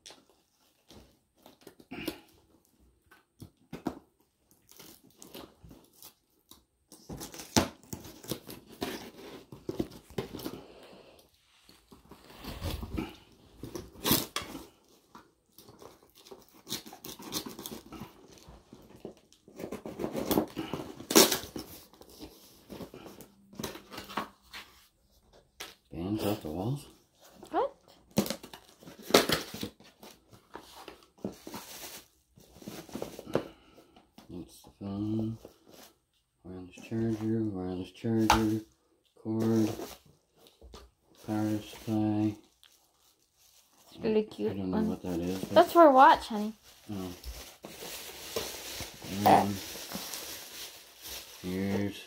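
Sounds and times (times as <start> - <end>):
cardboard tearing: 12.2 - 14.8, 15.6 - 23.0
knife cutting tape and cardboard: 13.9 - 14.7, 16.2 - 18.1.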